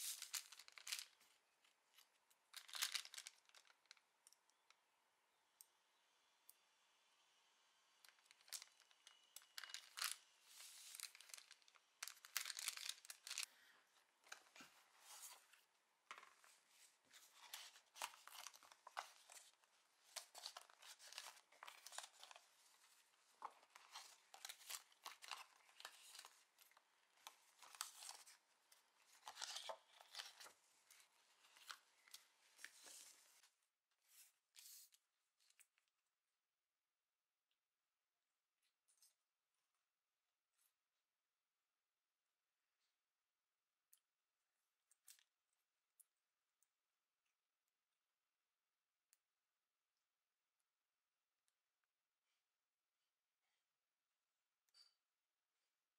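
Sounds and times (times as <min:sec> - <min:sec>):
plastic sleeve crackling: 0:00.0 - 0:01.3, 0:02.5 - 0:04.0, 0:08.1 - 0:13.5, 0:16.1 - 0:33.5
paper packet crinkling: 0:00.0 - 0:01.4, 0:02.5 - 0:04.0, 0:08.1 - 0:13.5, 0:16.1 - 0:33.5.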